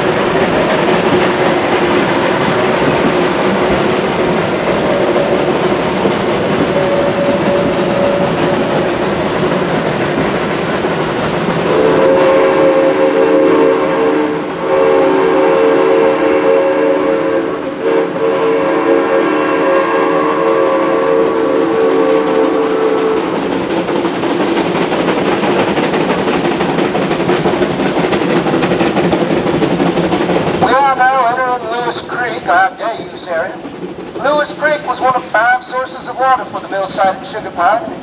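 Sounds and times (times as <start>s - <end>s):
train running along track: 0.0s - 38.0s
steam whistle blasts: 6.7s - 8.4s, 11.6s - 23.5s.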